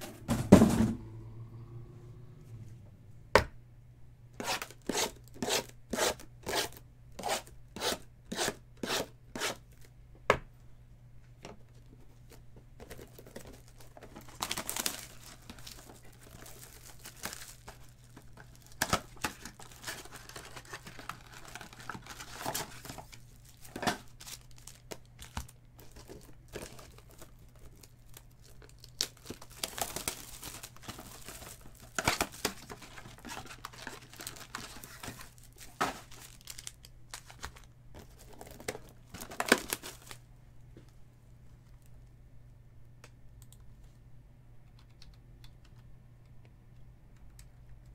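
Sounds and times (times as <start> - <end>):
plastic wrap and foil packs crinkling: 11.6 - 40.3.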